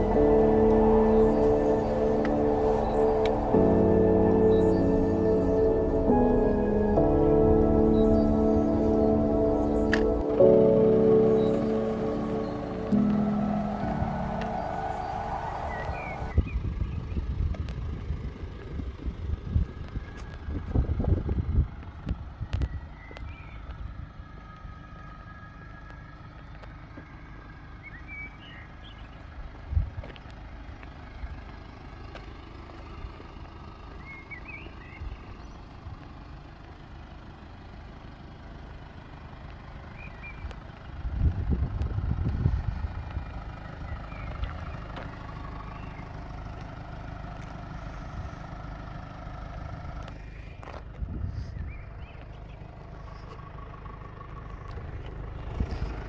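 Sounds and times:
faint high chirps: 0.0 - 16.6
low buffeting: 0.0 - 24.1
steady low rumble: 0.0 - 24.8, 40.0 - 48.6.

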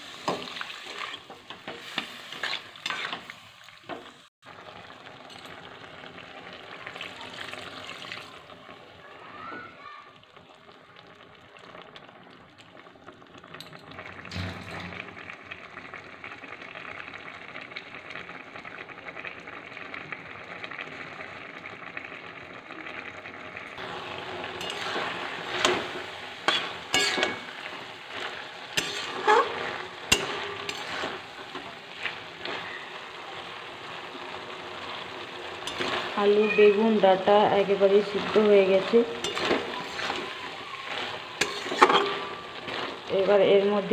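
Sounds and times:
curry bubbling and sizzling: 0.0 - 43.9
metal spatula scraping pan: 0.3 - 3.4, 14.2 - 15.2, 24.4 - 33.0, 35.6 - 36.8, 37.6 - 43.3.

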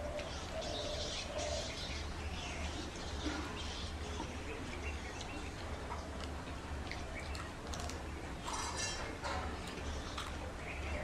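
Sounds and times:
chewing: 5.2 - 8.8, 9.6 - 10.4.

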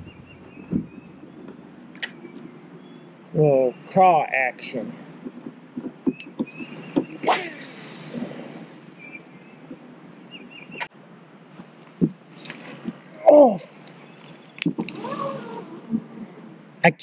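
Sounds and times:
fishing line swish and reel whir: 6.7 - 8.9, 14.9 - 16.0.

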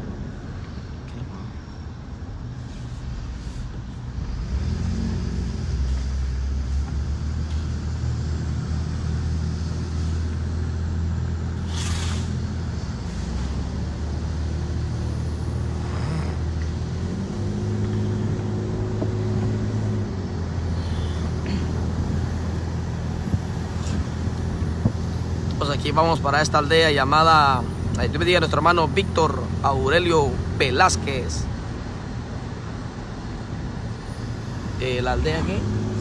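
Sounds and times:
car engine and road noise: 0.0 - 36.0
brief hiss: 11.6 - 12.4.

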